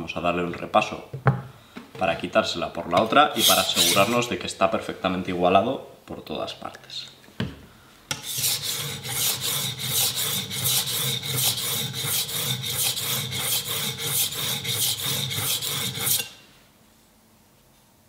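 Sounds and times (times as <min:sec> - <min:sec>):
knife scraping on sharpening plate: 0:03.4 - 0:04.3, 0:08.1 - 0:16.4.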